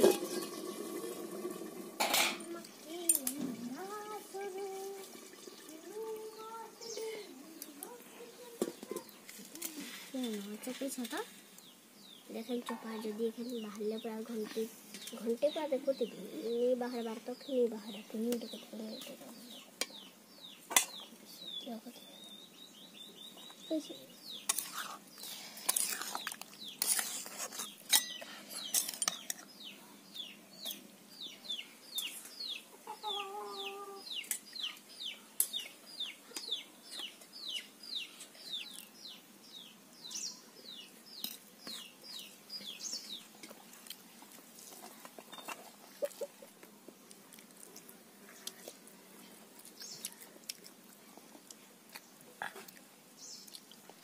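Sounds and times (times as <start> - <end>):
chick peeping: 29.6 - 43.3.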